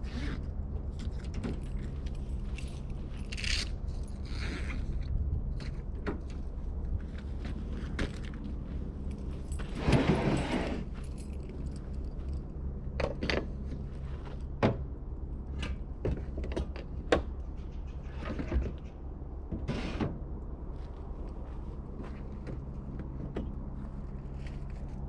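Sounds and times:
camping gear clattering: 7.5 - 13.6.

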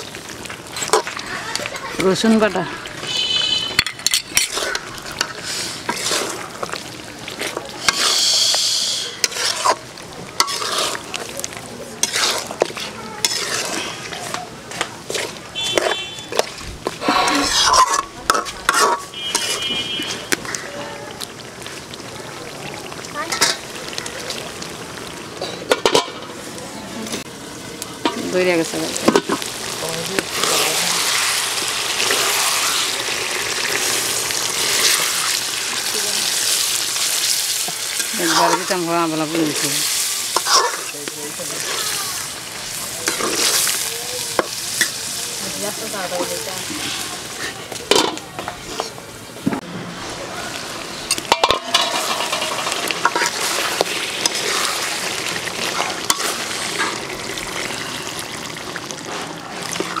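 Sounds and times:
meat and paste sizzling: 0.0 - 60.0
spatula scraping metal pan: 3.0 - 6.5, 7.8 - 9.8, 10.4 - 11.1, 12.0 - 16.5, 17.1 - 20.3, 37.6 - 42.0, 51.1 - 54.9
water poured into hot oil: 28.0 - 47.5, 50.0 - 60.0.

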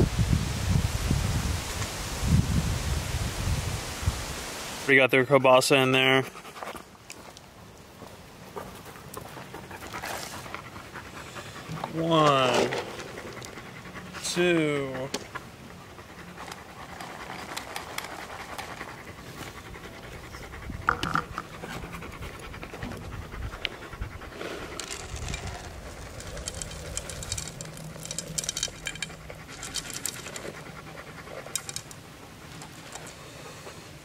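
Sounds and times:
dog panting: 6.1 - 6.9, 8.8 - 34.0
small clicks and scrapes: 16.3 - 19.6, 24.4 - 33.8.

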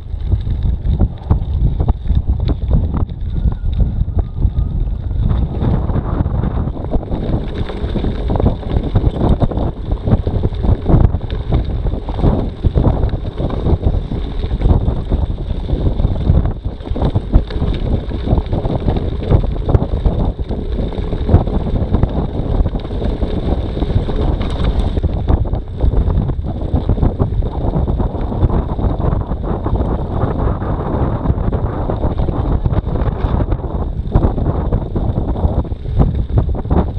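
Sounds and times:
bike rattling on gravel: 0.0 - 36.9
wind buffeting microphone: 0.0 - 36.9.

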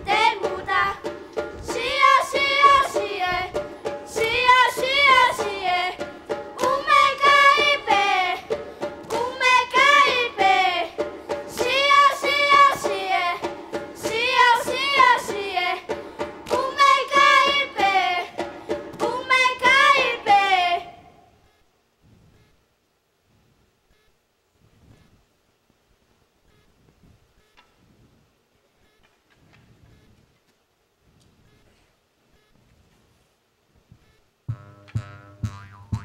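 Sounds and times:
children singing together: 0.0 - 21.0
steady held accompaniment: 34.5 - 36.0.

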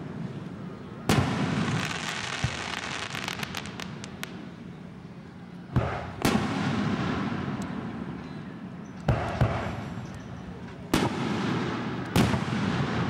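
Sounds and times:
crackling pops: 1.1 - 4.4
fireworks bangs: 1.1 - 4.4, 10.9 - 13.0.

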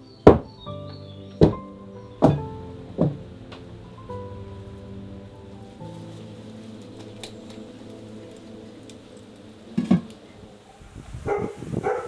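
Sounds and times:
soft background music: 0.0 - 12.0
dog barking: 11.2 - 12.0.

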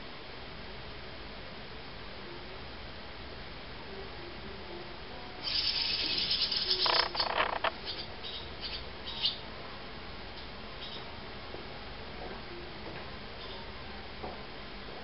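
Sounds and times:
swallow chicks begging calls: 5.4 - 9.4.

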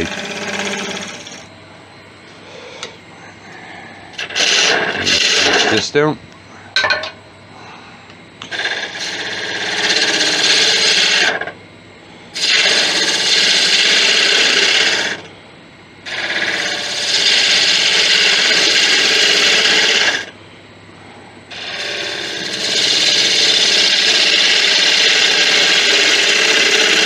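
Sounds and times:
lathe running: 0.0 - 1.5, 4.2 - 6.1, 8.4 - 11.6, 12.3 - 15.3, 16.0 - 20.4, 21.5 - 27.0
tool cutting wood on lathe: 0.0 - 1.5, 4.2 - 5.9, 8.4 - 11.6, 12.4 - 15.3, 16.1 - 20.3, 21.5 - 27.0.

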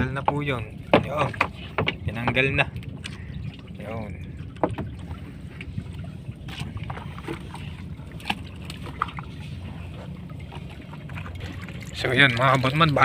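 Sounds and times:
knocks and clicks of net hauling: 0.0 - 3.2, 4.6 - 5.7
boat motor humming: 0.0 - 13.0.

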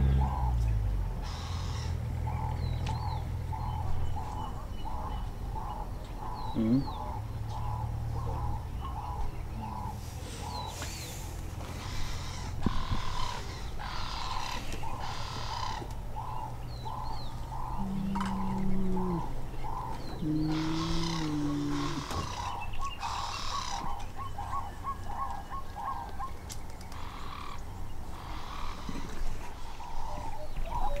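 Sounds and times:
steady low hum: 0.0 - 24.9
rough breathy animal calls: 4.4 - 26.0.

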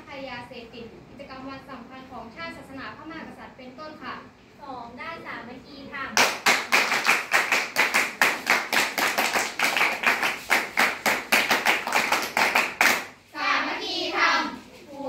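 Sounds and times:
girls clapping in unison: 6.2 - 13.2.

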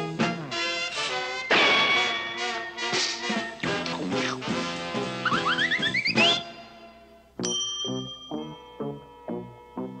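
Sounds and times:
cartoon music: 3.6 - 6.6.

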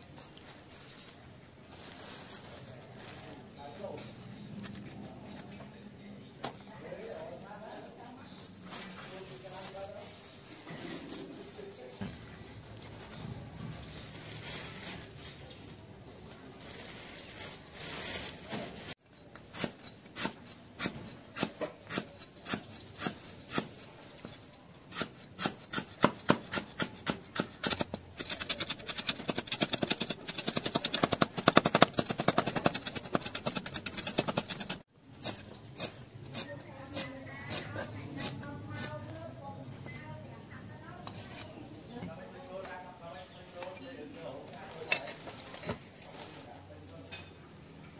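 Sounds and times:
soft rustling: 0.0 - 5.7.

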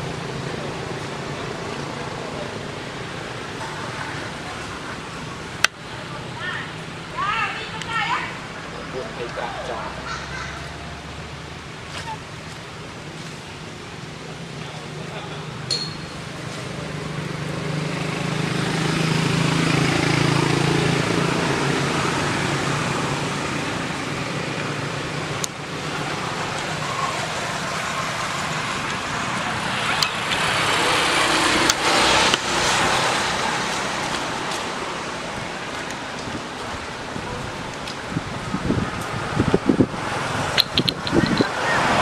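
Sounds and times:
vehicles passing: 0.0 - 42.0
sharp clicks: 40.5 - 41.5.

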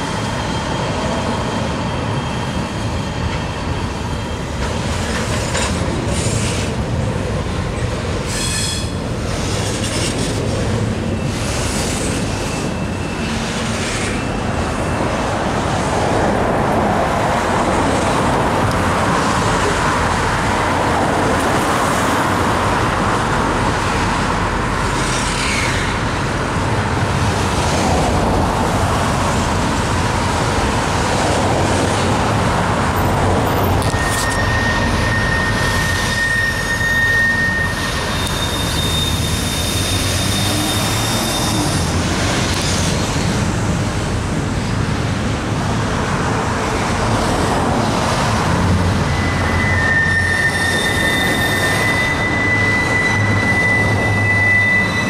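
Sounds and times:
freight train rumbling over bridge: 0.0 - 55.0
thin high squeal: 33.8 - 41.9, 49.0 - 55.0.

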